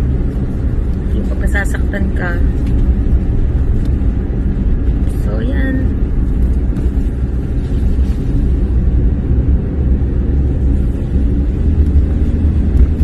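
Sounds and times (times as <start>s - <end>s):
car engine and tyre rumble: 0.0s - 13.0s.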